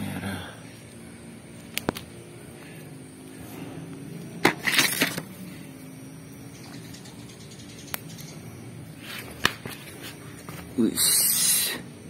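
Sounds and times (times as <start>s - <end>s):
faint steady hum: 0.0s - 12.0s
chili peppers snapping off: 1.7s - 2.1s
sharp clicks: 6.8s - 8.4s.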